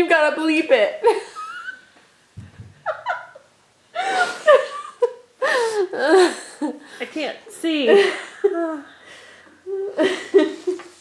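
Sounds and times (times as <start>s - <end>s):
laughter: 1.0s - 1.8s, 2.4s - 6.8s, 7.9s - 8.9s, 10.0s - 11.0s.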